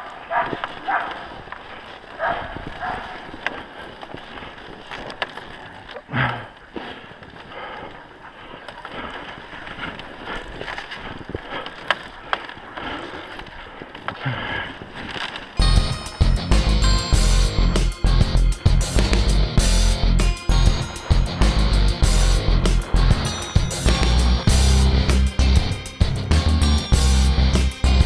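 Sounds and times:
sled sliding over snow: 0.0 - 28.0
wind on microphone: 2.2 - 4.9.

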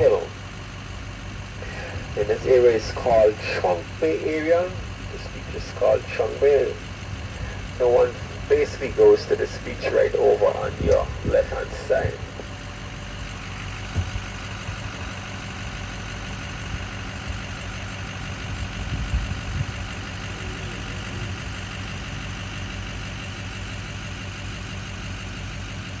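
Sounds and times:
bus engine droning: 0.0 - 26.0.

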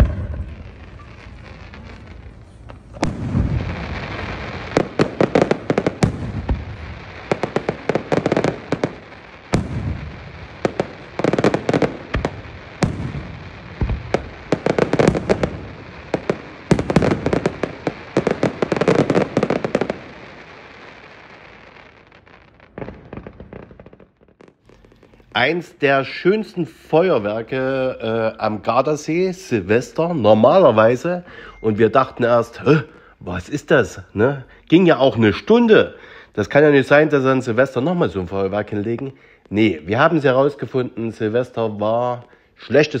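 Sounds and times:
fireworks crackling bangs: 0.0 - 34.3, 35.3 - 42.3.

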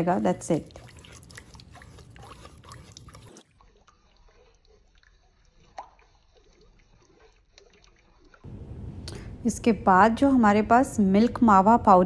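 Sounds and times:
spatula stirring liquid in pan: 0.0 - 8.5.

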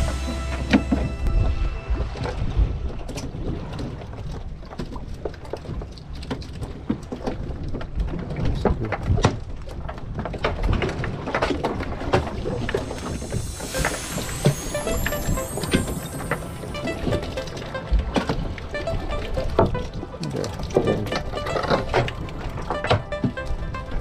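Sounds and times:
low rumble: 0.0 - 4.6, 12.2 - 24.0.

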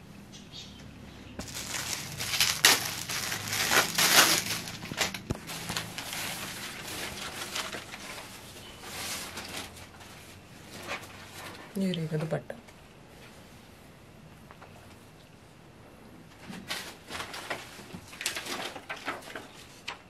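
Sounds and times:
cloth rustling and crinkling: 1.4 - 11.6.

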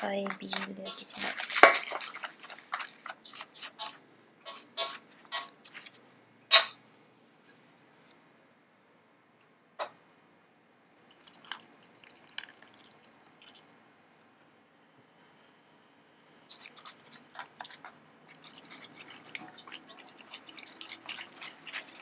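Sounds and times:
whisk scraping metal bowl: 0.0 - 5.9, 16.5 - 22.0.

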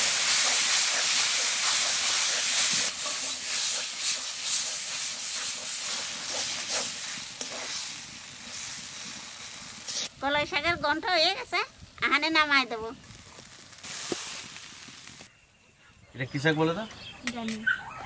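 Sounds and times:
greens sizzling in wok: 0.0 - 15.3
spatula scraping pan: 0.2 - 10.1.

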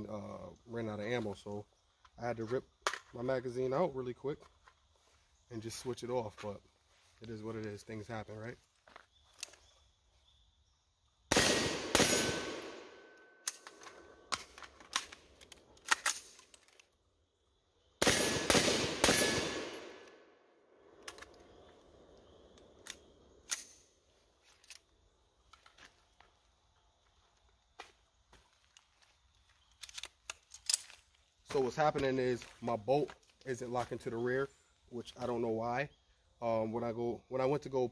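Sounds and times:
rifle shots: 11.3 - 13.6, 18.0 - 20.0
metallic clicks of rifle handling: 13.4 - 17.0, 21.0 - 21.6, 22.5 - 25.8, 29.6 - 31.3.

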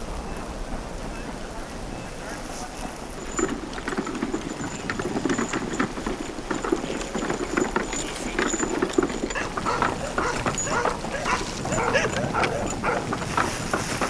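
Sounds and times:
hooves in wet snow: 0.0 - 14.0.

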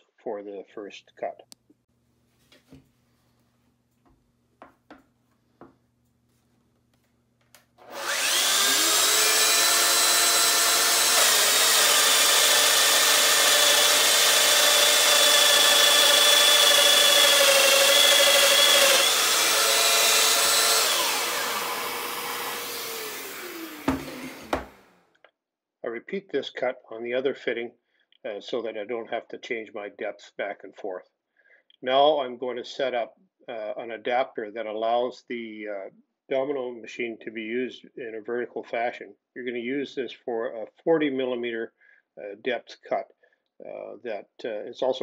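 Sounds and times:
dust extractor running: 7.8 - 24.8
power joiner cutting wood: 7.8 - 25.0.

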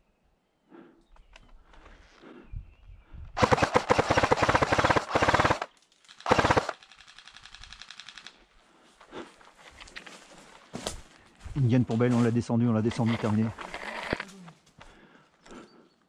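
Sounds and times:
airsoft gun firing full auto: 3.4 - 8.3.

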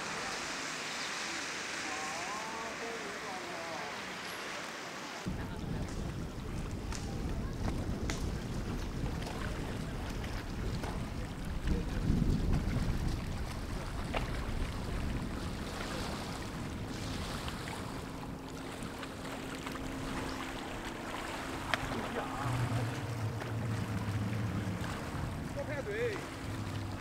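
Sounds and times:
wind noise on microphone: 5.3 - 18.4, 22.4 - 27.0
distant motor drone: 13.6 - 27.0
deep hum: 18.0 - 27.0.

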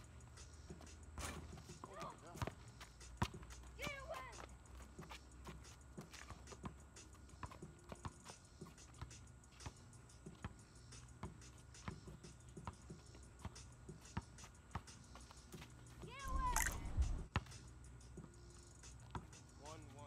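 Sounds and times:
basketball bouncing on pavement: 1.2 - 6.8, 7.4 - 9.2, 11.2 - 15.7, 19.0 - 19.3.

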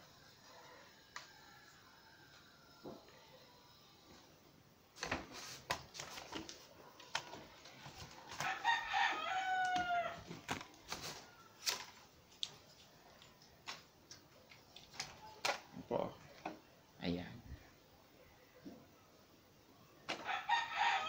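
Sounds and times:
rooster crowing: 0.0 - 4.1, 8.4 - 11.7, 20.1 - 21.0.

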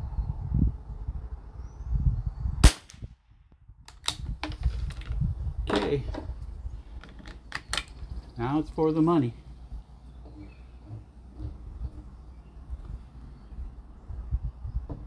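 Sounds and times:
rifle shot: 2.6 - 3.1.

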